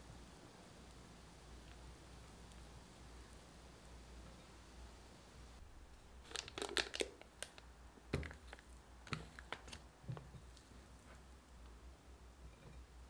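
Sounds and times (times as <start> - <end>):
plastic bag crinkling: 6.2 - 9.9.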